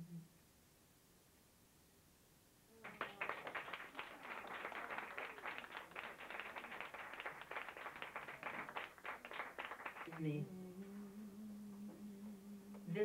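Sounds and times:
audience clapping: 2.8 - 10.4.

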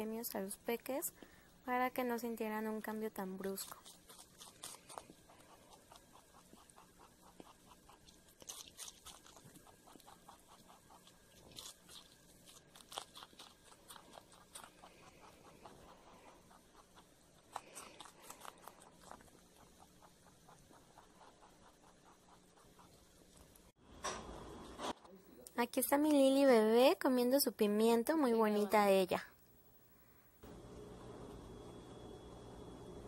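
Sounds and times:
rabbit chewing crunchy food: 1.9 - 25.2.

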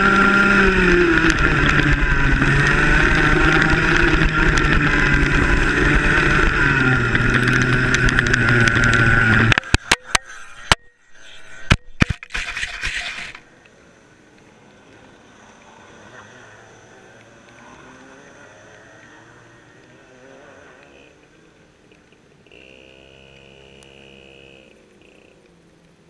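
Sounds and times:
go-kart engine running: 0.0 - 10.2, 12.2 - 25.7
camera tumbling knocks and scrapes: 1.0 - 10.8, 11.5 - 13.5.

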